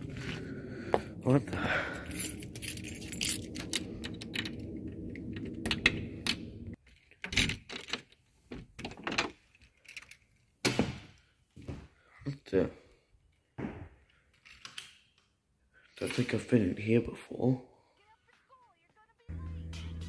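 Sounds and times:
steady low hum: 0.0s - 6.8s.

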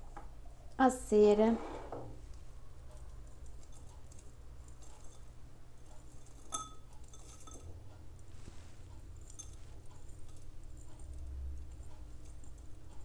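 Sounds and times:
glass dish clinking against glass: 6.4s - 7.7s.

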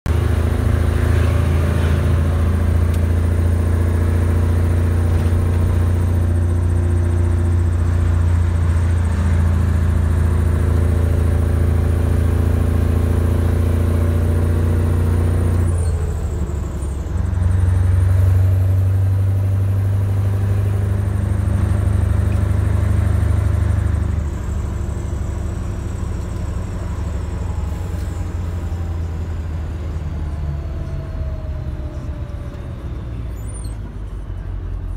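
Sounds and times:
truck engine driving: 0.1s - 34.9s.

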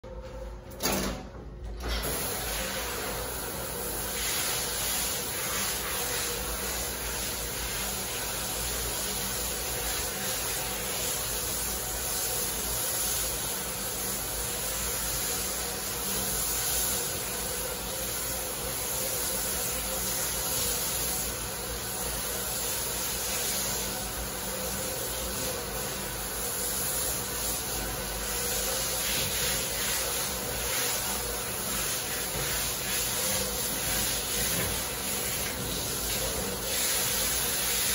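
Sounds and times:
shower spray on wet dog: 2.0s - 37.9s.

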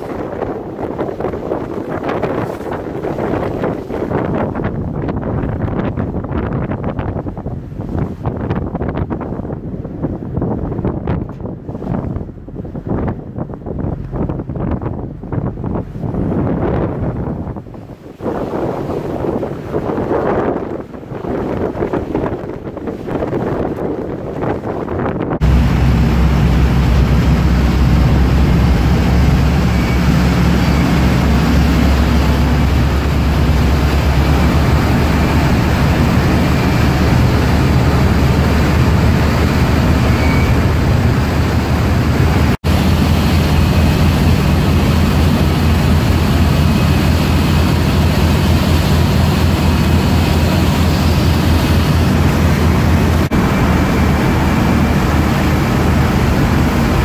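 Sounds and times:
churning water: 0.0s - 57.0s
wind rushing: 0.0s - 57.0s
ship engine humming: 25.4s - 57.0s.

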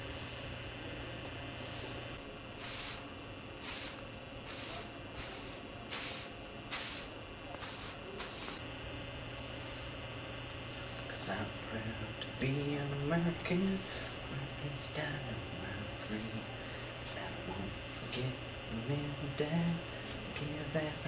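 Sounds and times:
short hissing bursts: 0.0s - 0.5s, 1.5s - 2.0s, 2.6s - 8.6s, 13.8s - 14.2s, 16.0s - 16.6s
steady electrical hum: 0.0s - 21.0s.

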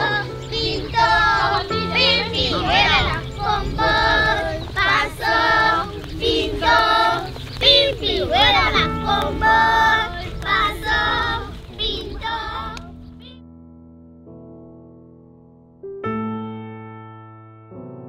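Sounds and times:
children singing in chorus: 0.0s - 13.0s
low sustained musical accompaniment: 0.0s - 13.4s.

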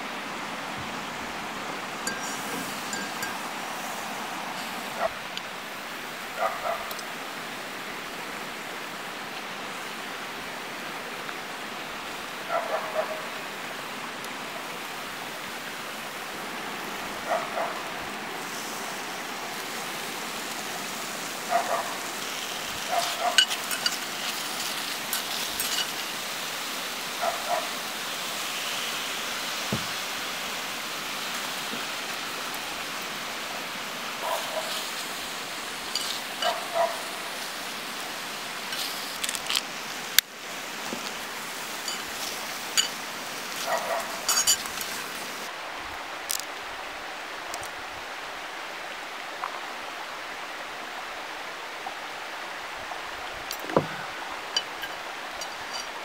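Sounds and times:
scallops sizzling in skillet: 2.0s - 5.0s, 18.4s - 45.5s
distant dog barking: 4.9s - 5.2s, 6.4s - 6.9s, 12.4s - 13.4s, 17.2s - 17.9s, 21.4s - 22.2s, 22.8s - 23.8s, 27.2s - 27.8s, 34.2s - 34.9s, 36.4s - 37.3s, 43.6s - 44.4s.

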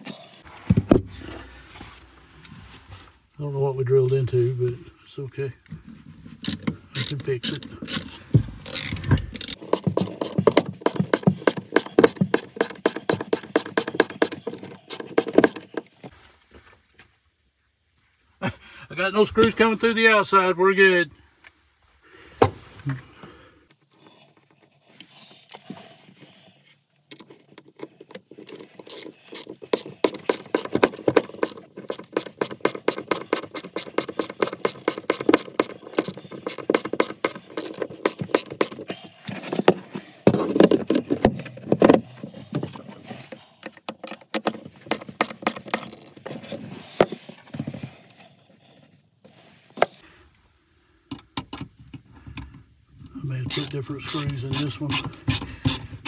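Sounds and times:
ratcheting screwdriver clicking: 6.4s - 15.7s, 28.4s - 38.8s, 53.5s - 55.9s.

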